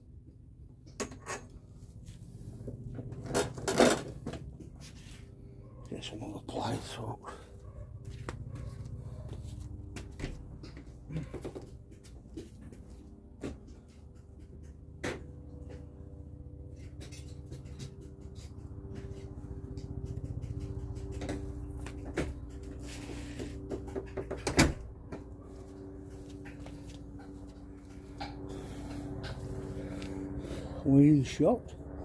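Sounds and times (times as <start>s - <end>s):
steady low hum: 0.0s - 32.0s
tools and metal parts clattering: 3.1s - 4.4s.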